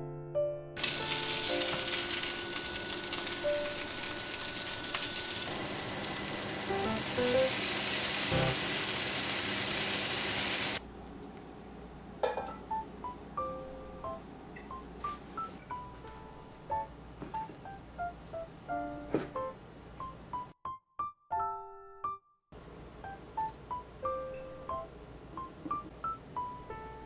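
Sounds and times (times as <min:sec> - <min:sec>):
patties sizzling in oil: 0:00.8 - 0:10.8.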